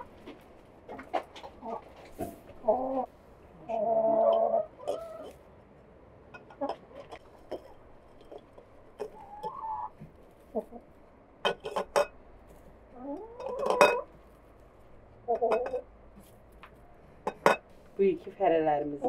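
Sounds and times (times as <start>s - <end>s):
chicken calling: 0.9s - 5.4s, 9.0s - 11.0s, 12.9s - 14.2s
eggs clinking in a ceramic bowl: 11.4s - 12.2s, 13.2s - 14.1s, 15.3s - 15.9s, 17.3s - 17.7s.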